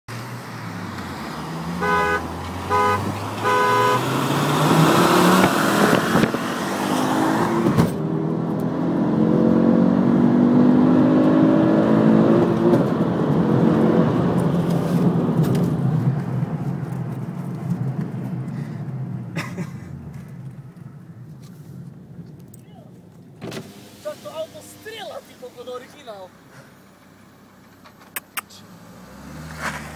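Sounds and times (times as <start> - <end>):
car engine accelerating hard: 0.1 - 20.8, 28.5 - 29.9
car horn toots: 1.8 - 4.2.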